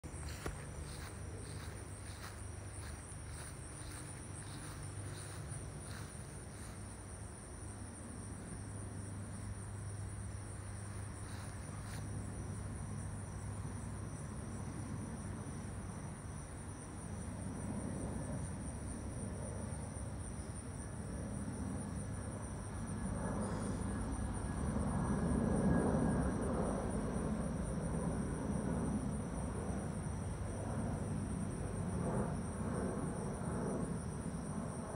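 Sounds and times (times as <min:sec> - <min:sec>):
jet engines rumbling overhead: 0:00.0 - 0:34.9.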